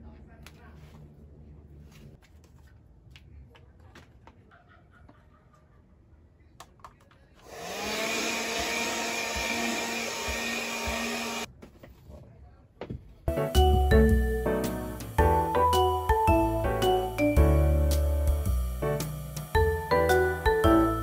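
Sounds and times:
handheld vacuum cleaner whining: 7.4s - 11.5s, 18.2s - 21.0s.

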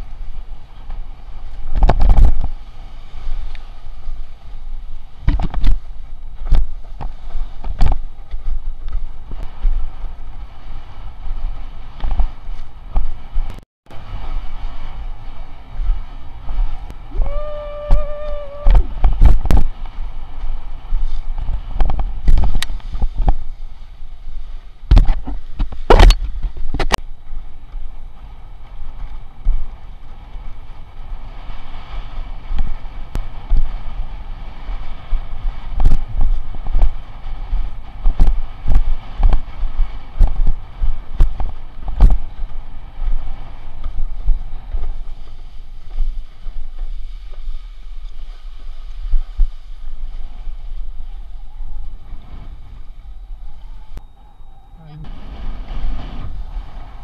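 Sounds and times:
water rushing past a board: 0.0s - 53.9s
wind rumbling on microphone: 0.0s - 57.0s
board slamming on waves: 5.2s - 8.1s, 24.9s - 27.0s.

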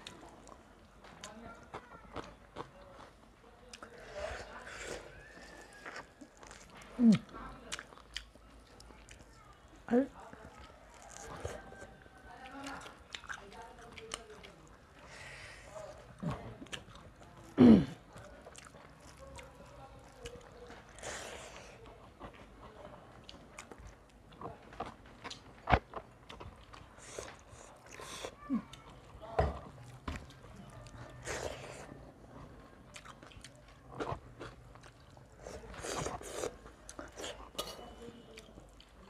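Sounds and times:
people chewing food: 0.0s - 39.0s
chewing and wet mouth clicks: 5.6s - 9.6s, 10.2s - 14.7s, 16.6s - 17.4s, 18.1s - 21.0s, 32.9s - 39.0s.

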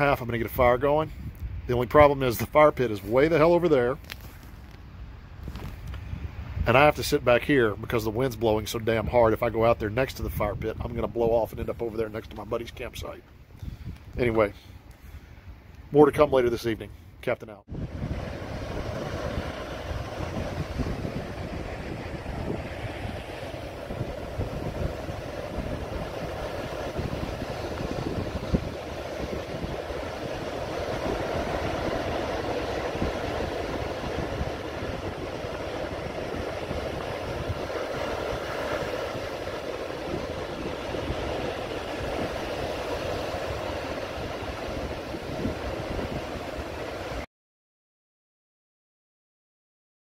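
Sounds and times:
wind buffeting microphone: 0.0s - 14.5s, 17.7s - 47.2s
ocean surf breaking: 17.7s - 47.3s.

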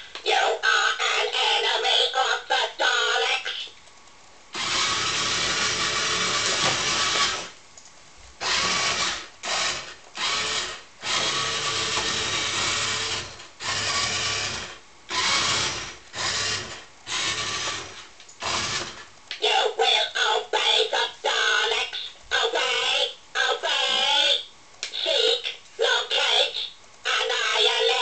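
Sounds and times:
toy motor and gears whirring: 4.5s - 7.6s, 8.4s - 19.6s.

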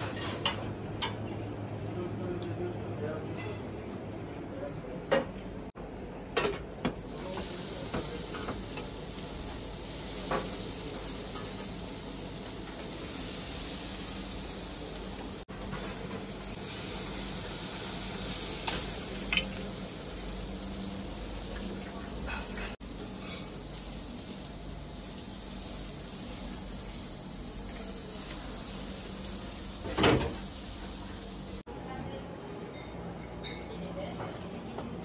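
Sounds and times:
aubergines sizzling on charcoal grill: 7.0s - 31.6s.

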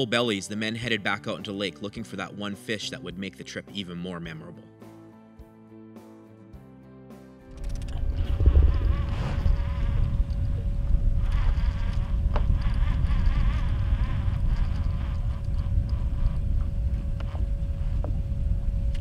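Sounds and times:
steady buzzing hum: 7.6s - 19.0s
wind buffeting microphone: 7.6s - 19.0s.

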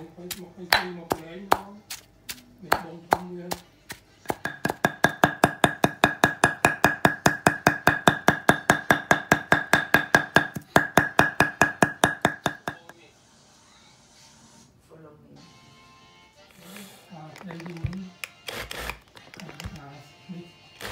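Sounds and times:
pestle knocking in stone mortar: 0.2s - 12.9s
cleaver chopping on wooden board: 0.3s - 12.9s.

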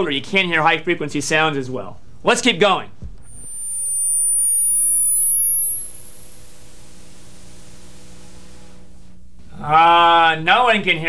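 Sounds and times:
rising high-pitched test tone: 3.2s - 8.8s.

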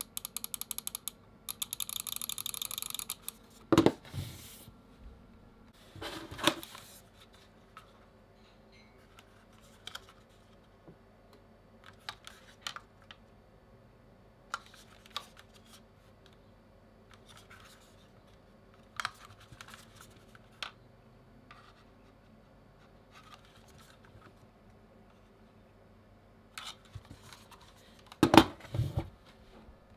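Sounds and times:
plastic mice clicks and rubs: 0.0s - 3.4s.

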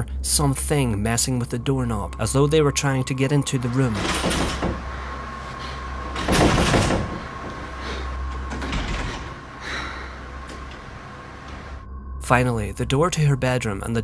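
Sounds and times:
doorknob rattling: 3.7s - 5.3s, 6.0s - 11.8s.

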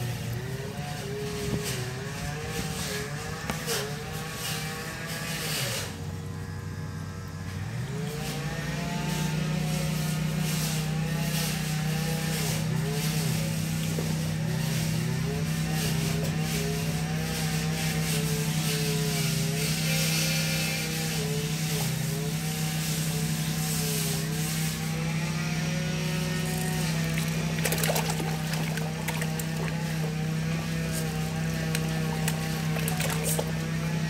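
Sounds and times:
low mechanical hum: 0.0s - 34.0s
fish splashing in water: 26.3s - 34.0s.

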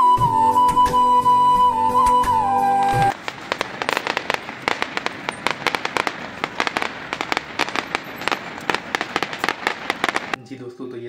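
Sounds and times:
fireworks cracking and banging: 2.4s - 10.4s.

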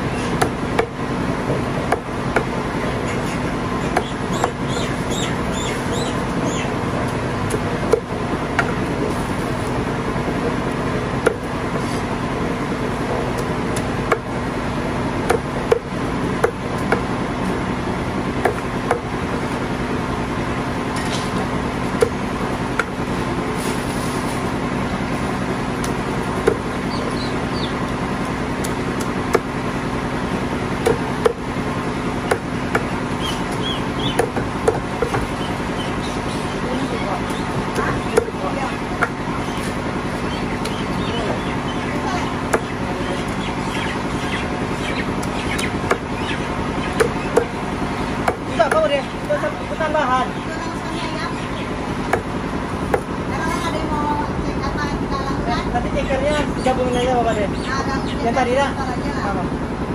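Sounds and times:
steady background hum: 0.0s - 59.9s
cleaver chopping on wooden block: 0.3s - 1.0s, 1.9s - 2.6s, 3.9s - 4.7s, 11.2s - 11.5s, 13.4s - 14.3s, 15.2s - 17.1s, 18.4s - 19.1s, 25.8s - 26.7s, 28.6s - 29.5s, 30.8s - 31.4s, 32.2s - 32.9s, 34.0s - 35.3s, 37.3s - 38.4s, 42.5s - 42.7s, 45.2s - 46.1s, 46.9s - 47.6s, 48.2s - 48.9s, 52.1s - 52.3s, 52.9s - 53.1s.

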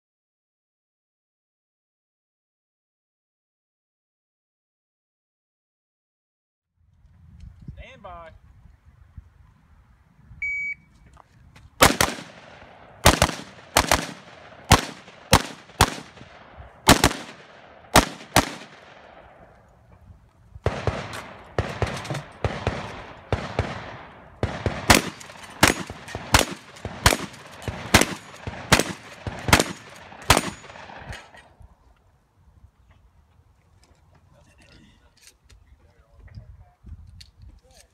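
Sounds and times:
rifle shots with echo: 11.8s - 19.7s, 20.6s - 31.5s.

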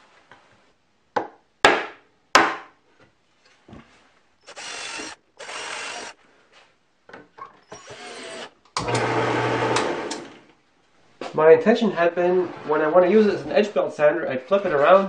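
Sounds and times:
cordless drill running: 4.4s - 6.2s, 7.7s - 10.3s.

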